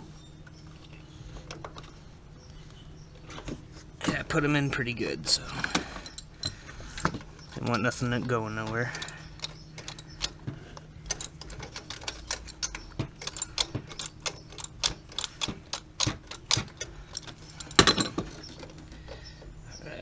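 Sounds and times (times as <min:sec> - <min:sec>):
hand ratchet clicking: 0:08.8 - 0:10.4, 0:11.1 - 0:18.9
metal clatter: 0:11.0 - 0:19.0.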